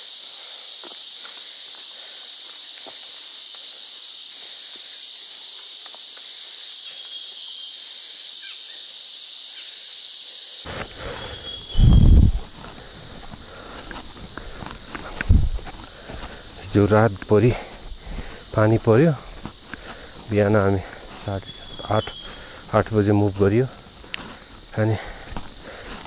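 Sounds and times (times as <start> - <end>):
high-pitched insect chorus: 0.0 - 26.0
heavy low thump: 11.8 - 12.6, 15.1 - 15.8.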